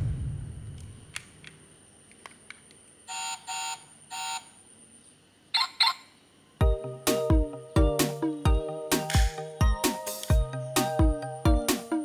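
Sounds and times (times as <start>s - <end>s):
background music: 6.6s - 12.0s.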